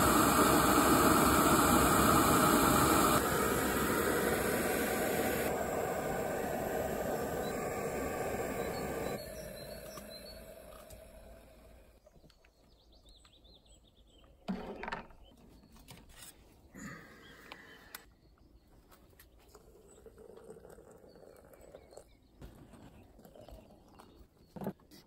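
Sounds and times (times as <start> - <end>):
hot water pouring into glass: 0.0 - 11.6, 19.5 - 22.1.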